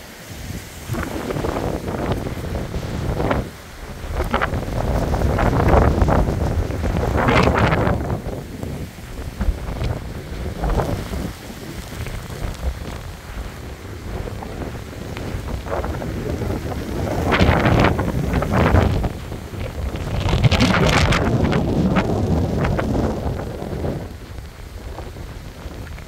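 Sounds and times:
rain falling: 0:00.0 - 0:26.0
wind gusting against microphone: 0:00.0 - 0:26.0.

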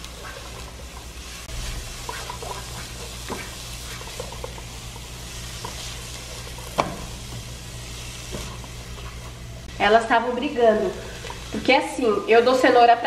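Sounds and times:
onion sizzling in a pan: 0:00.0 - 0:13.0
spoon scraping a pan: 0:01.5 - 0:07.1.

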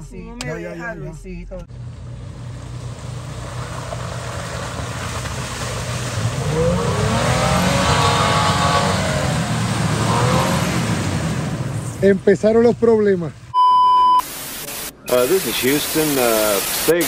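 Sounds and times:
engine revving: 0:01.7 - 0:12.2.

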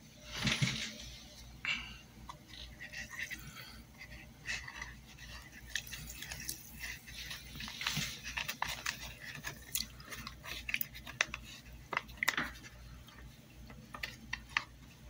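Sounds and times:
small splashes and drips: 0:05.7 - 0:07.3.

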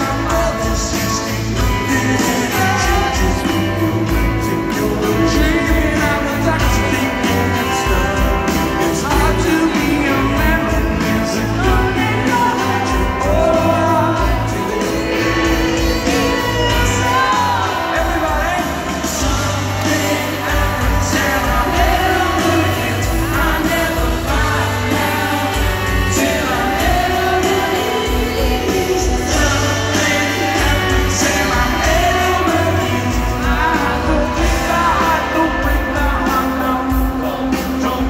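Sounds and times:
live pop-rock band: 0:00.0 - 0:38.0
male lead vocal: 0:00.0 - 0:38.0.

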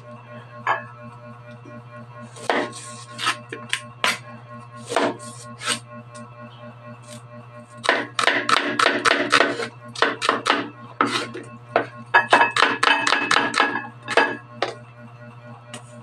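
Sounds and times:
knife chopping on wooden board: 0:02.4 - 0:04.2, 0:04.8 - 0:05.8, 0:07.8 - 0:14.8.

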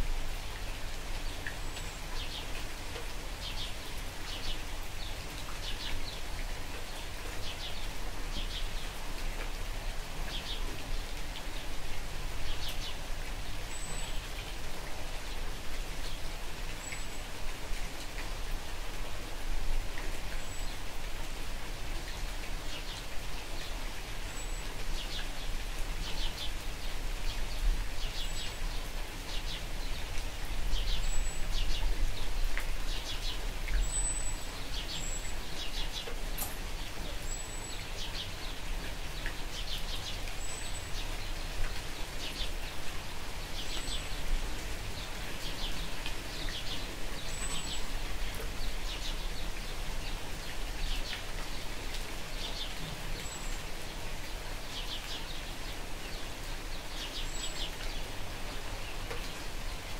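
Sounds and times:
light rain falling: 0:00.0 - 0:59.9
small birds chirping: 0:30.7 - 0:42.8, 0:43.4 - 0:58.1.

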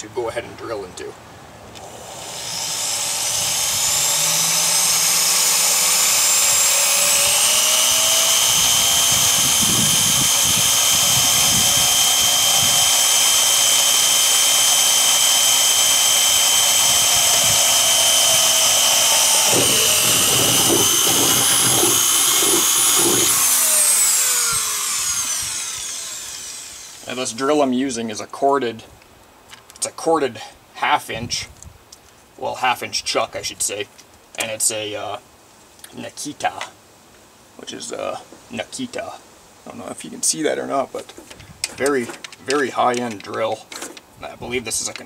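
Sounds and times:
power drill running: 0:01.8 - 0:27.2
drill bit chattering on metal: 0:02.4 - 0:27.1.

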